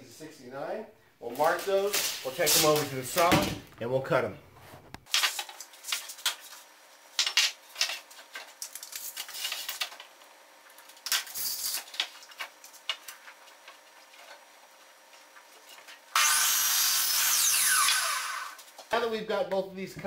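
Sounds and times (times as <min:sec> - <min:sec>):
miter saw motor whine: 0:16.1 - 0:18.7.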